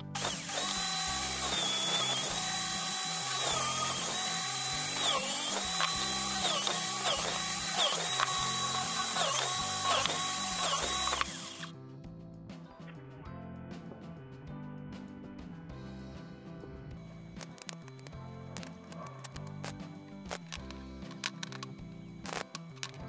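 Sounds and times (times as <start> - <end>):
electric drill boring into wood: 0.0 - 11.7.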